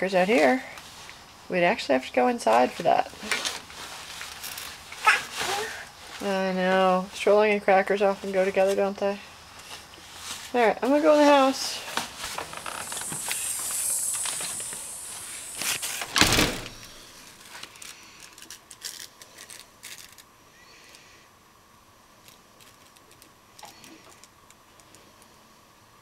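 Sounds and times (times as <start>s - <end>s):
rustling: 2.5s - 6.8s, 9.5s - 21.1s
stroller frame thump and rattle: 15.5s - 17.1s.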